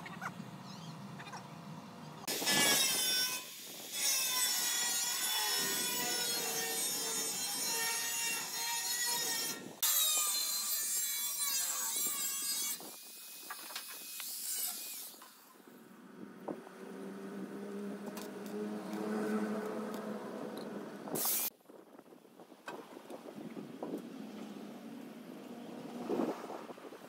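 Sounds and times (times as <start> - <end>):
angle grinder grinding metal: 2.3 - 15.6.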